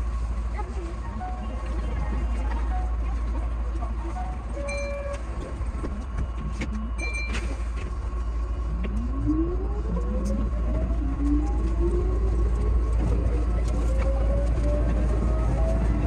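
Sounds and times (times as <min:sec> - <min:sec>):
electric train accelerating: 0:00.0 - 0:16.0.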